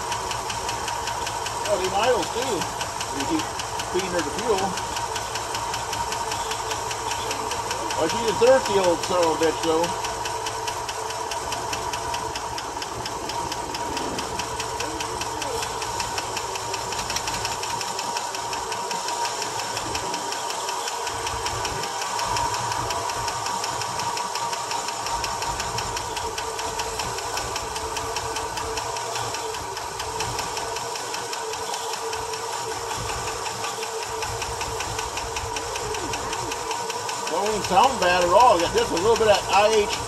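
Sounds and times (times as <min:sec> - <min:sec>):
engine lifter tick: 0:00.0 - 0:40.0
engine running: 0:00.0 - 0:40.0.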